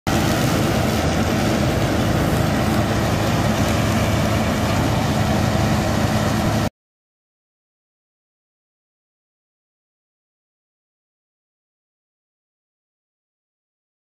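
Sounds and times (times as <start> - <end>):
combine harvester engine drone: 0.1 - 6.7
mechanical rush of harvester: 0.1 - 6.7.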